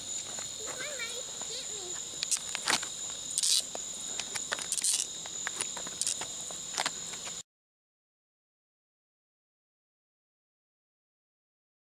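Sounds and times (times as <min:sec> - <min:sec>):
crickets trilling: 0:00.0 - 0:07.4
sharp clicks and crackles: 0:02.2 - 0:07.0.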